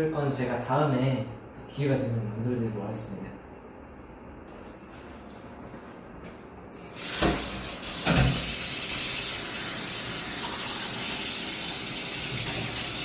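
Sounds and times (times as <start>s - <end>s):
tap water running into sink: 6.8s - 13.0s.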